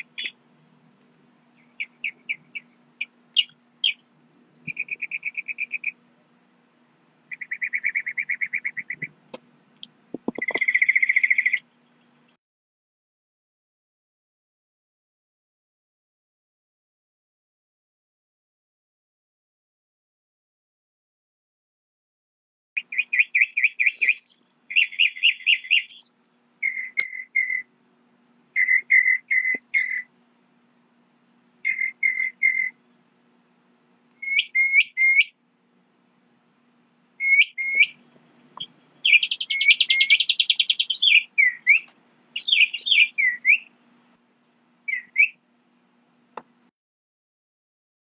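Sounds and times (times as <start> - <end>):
songbird singing: 0.0 - 0.5, 1.4 - 6.4, 7.3 - 12.4, 22.8 - 27.8, 28.5 - 30.2, 31.6 - 33.4, 34.1 - 35.4, 37.2 - 43.8, 44.4 - 45.4.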